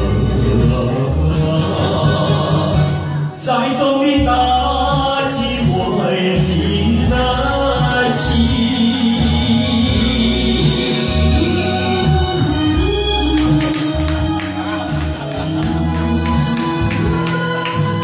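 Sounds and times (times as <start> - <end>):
man singing into microphone: 0.0 - 14.3
karaoke backing track with bass: 0.0 - 18.0.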